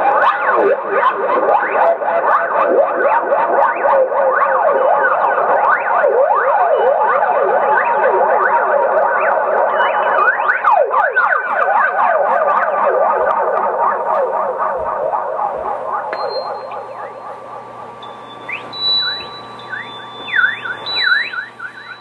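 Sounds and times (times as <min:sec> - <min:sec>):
sliding electronic tones: 0:05.7 - 0:22.0.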